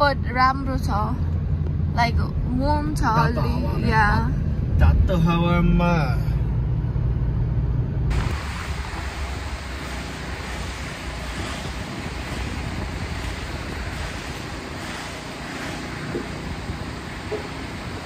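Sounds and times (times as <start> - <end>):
wind blowing: 6.6 - 18.0.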